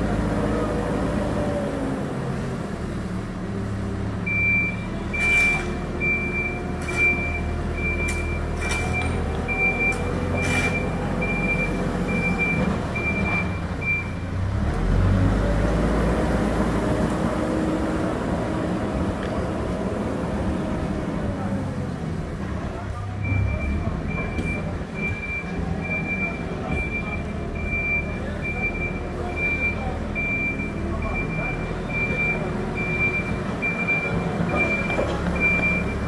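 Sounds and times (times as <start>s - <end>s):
diesel engine running: 0.0s - 36.0s
reversing alarm beeping: 4.3s - 14.2s, 23.2s - 36.0s.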